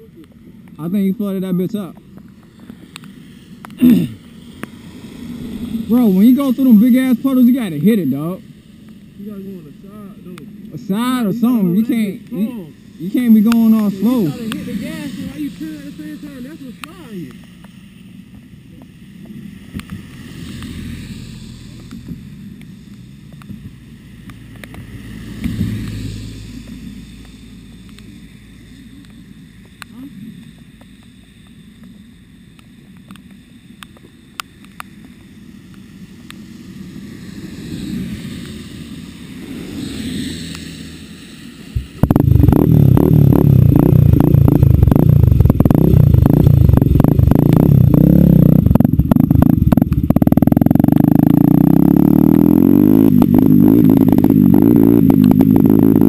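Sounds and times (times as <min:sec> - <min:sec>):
hiss from wet surroundings: 0:00.0 - 0:42.2
off-road engine running loud: 0:05.2 - 0:08.3, 0:09.2 - 0:17.4, 0:42.0 - 0:56.0
low engine idle: 0:42.0 - 0:51.3.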